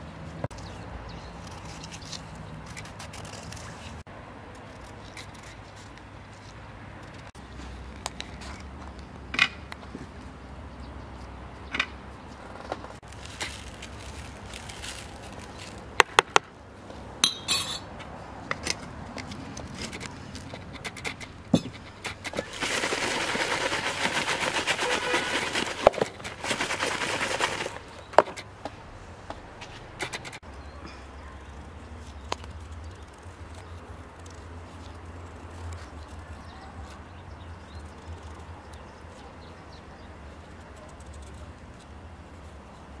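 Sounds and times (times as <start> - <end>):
food tossed in plastic bowl: 22.4 - 27.9.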